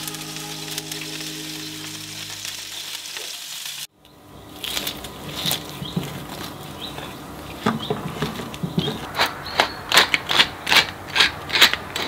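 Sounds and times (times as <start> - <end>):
pepper mill grinding: 9.9 - 12.0.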